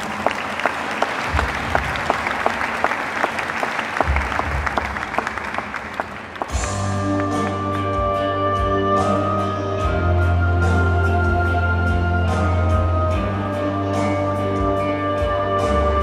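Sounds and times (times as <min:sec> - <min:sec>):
audience applauding: 0:00.0 - 0:07.8
music with held notes and bass: 0:06.5 - 0:16.0.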